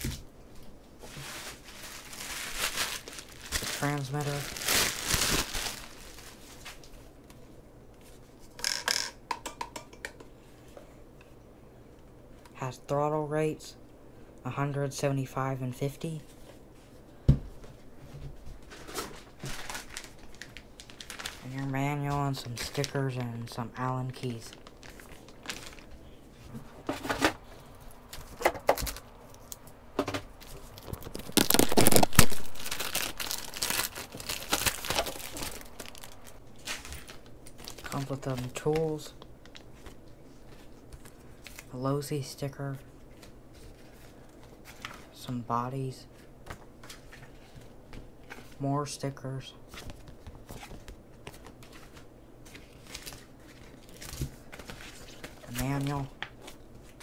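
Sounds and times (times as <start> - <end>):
plastic bag crinkling: 1.0 - 7.0, 18.6 - 41.7, 49.8 - 57.0.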